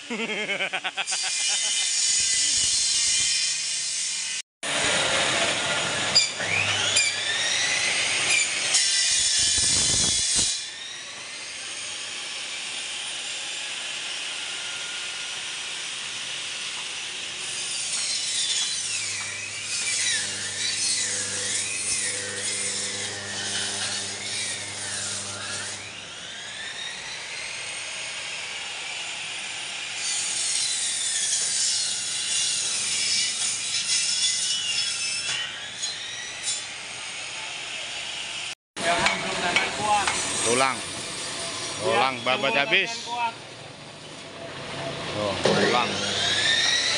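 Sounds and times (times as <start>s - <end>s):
band saw cutting bone: 16.6s - 27.4s, 45.4s - 46.9s.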